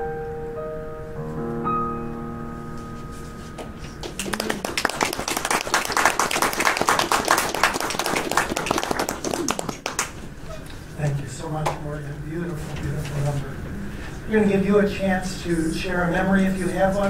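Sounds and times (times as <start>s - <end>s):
piano chords ringing: 0.0s - 7.4s
audience applause: 4.0s - 10.3s.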